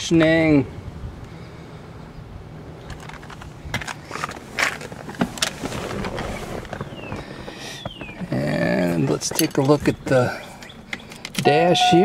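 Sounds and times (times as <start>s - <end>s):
rustling: 2.8s - 9.9s.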